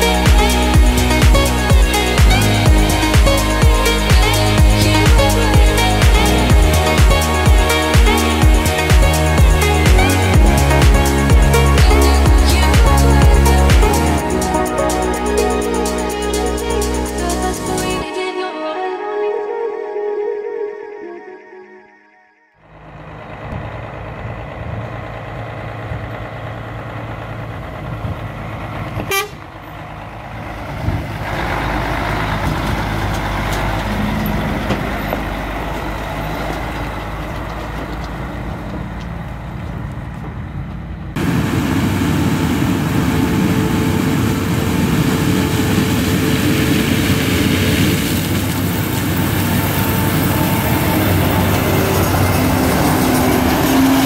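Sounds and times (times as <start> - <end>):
diesel truck engine running: 0.0 - 18.0, 22.6 - 54.0
combine harvester threshing: 22.9 - 54.0
truck horn toot: 29.0 - 29.6, 49.4 - 54.0.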